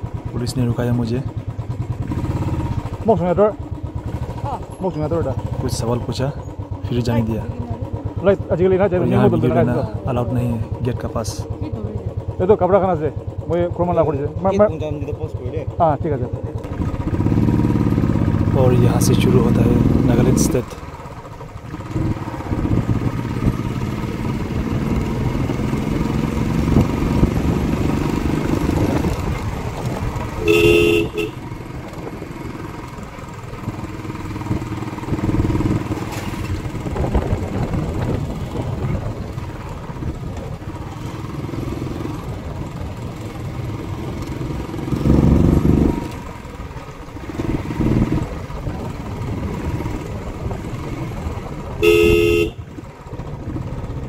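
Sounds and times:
motorcycle engine running: 0.0s - 54.0s
motorcycle horn honking: 30.3s - 31.6s, 51.8s - 52.8s
wind noise on microphone: 36.8s - 40.3s.

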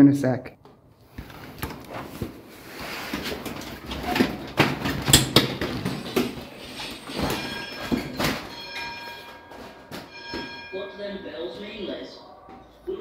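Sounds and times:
plastic strip curtain rustling: 1.3s - 7.4s
knocks and clatters: 3.1s - 10.7s.

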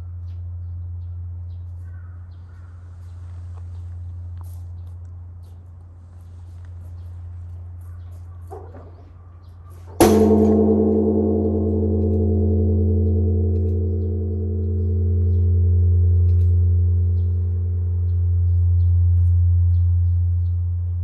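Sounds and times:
temple bell boom: 10.0s - 20.8s
deep bell hum: 10.0s - 21.0s.

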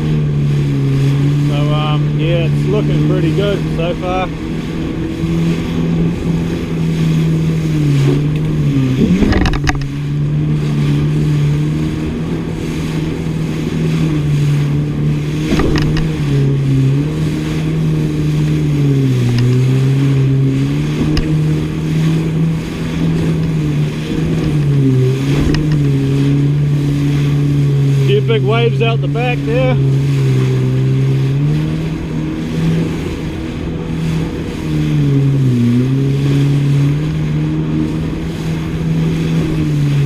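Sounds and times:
jet ski engine running: 0.0s - 40.0s
sharp knocks: 15.4s - 16.1s.

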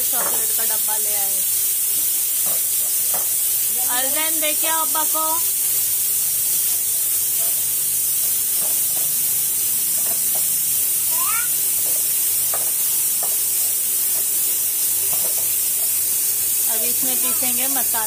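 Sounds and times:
foil crinkling and tapping: 0.0s - 1.1s, 2.0s - 5.4s, 6.7s - 7.7s, 8.5s - 9.2s, 11.8s - 16.2s
steady loud hiss: 0.0s - 18.0s
child's voice: 11.1s - 11.6s, 17.0s - 17.7s.

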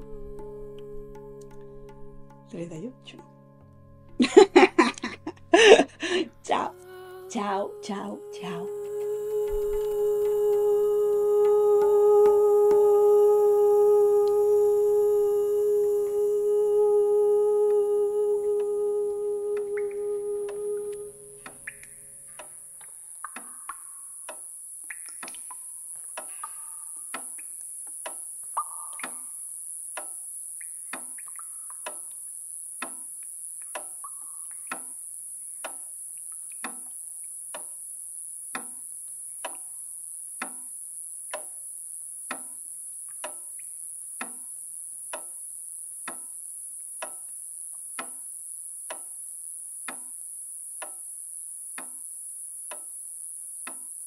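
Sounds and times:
constant high hiss: 0.0s - 3.2s, 4.1s - 54.0s
faint musical tones: 0.0s - 22.8s.

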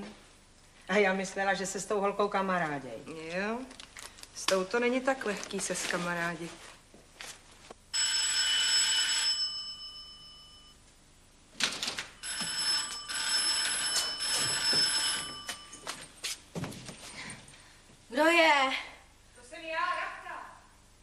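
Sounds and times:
electric doorbell ringing: 8.0s - 10.8s, 12.2s - 16.1s.

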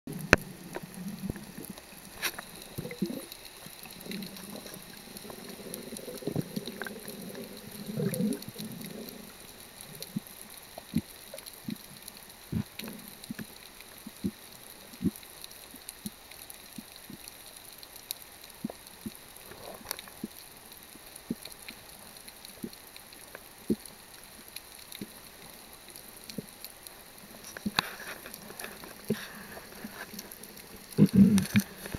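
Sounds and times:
muffled gurgling: 0.1s - 11.1s, 27.2s - 31.9s
faint underwater hiss: 0.1s - 31.9s.

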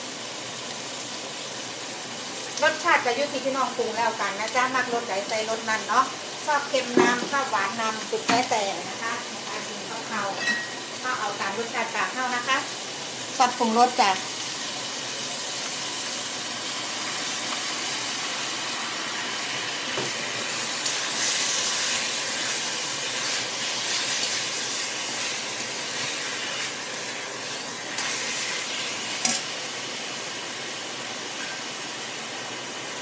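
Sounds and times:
food sizzling in hot oil: 0.0s - 33.0s.

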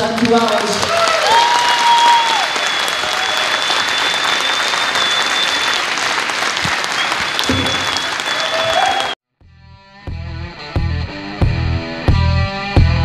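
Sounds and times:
audience applauding: 0.0s - 9.2s
high steady whistle: 2.1s - 6.0s, 6.8s - 9.2s.

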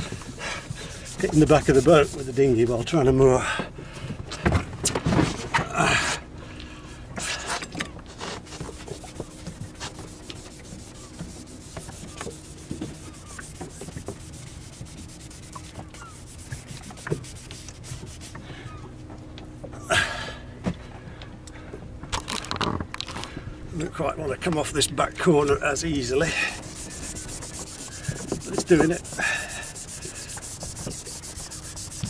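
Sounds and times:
scouring pad scrubbing hull: 0.0s - 3.2s, 8.1s - 18.8s, 24.4s - 32.0s.

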